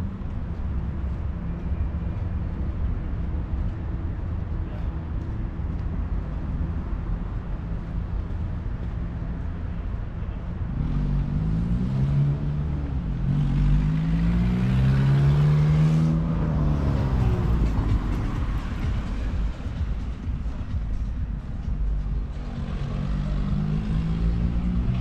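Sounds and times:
low street noise: 0:00.0 - 0:25.0
vehicle engine accelerating past: 0:10.7 - 0:20.0, 0:22.4 - 0:25.0.

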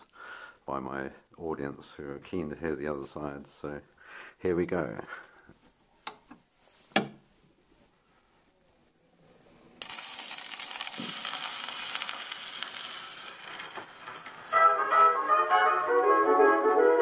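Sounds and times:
record surface hiss and crackle: 0:00.0 - 0:17.0
jazz band with brass: 0:14.5 - 0:17.0.

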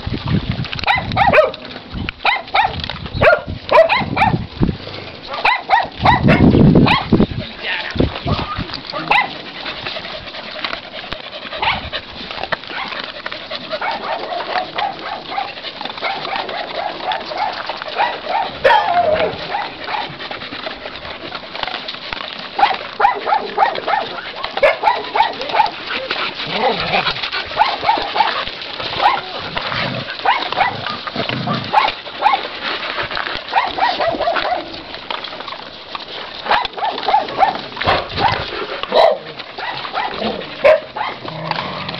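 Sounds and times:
dogs barking and yelping: 0:00.0 - 0:41.9
dry kibble crunching: 0:00.0 - 0:41.9.

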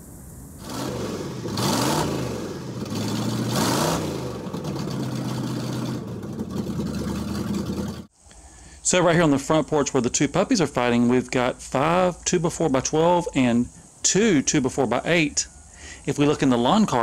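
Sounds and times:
van engine revving and idling: 0:00.6 - 0:08.1.

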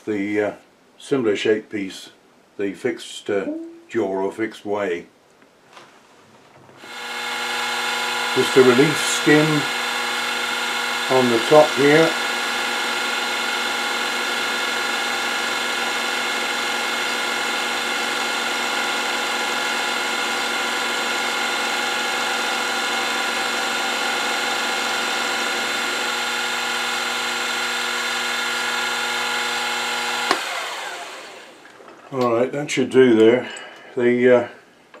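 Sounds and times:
milling machine whine: 0:06.8 - 0:31.8.

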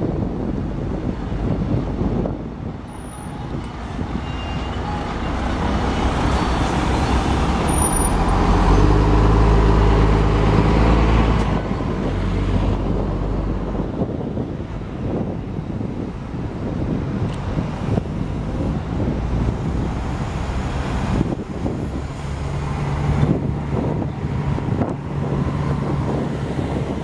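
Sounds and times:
diesel coach engine pulling away: 0:00.5 - 0:27.0
brief high squeaks: 0:04.2 - 0:05.4.

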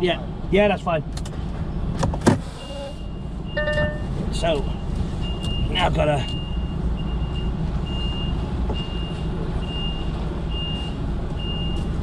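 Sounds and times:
diesel engine rumble: 0:00.0 - 0:12.0
reversing alarm beeping: 0:02.6 - 0:11.9.

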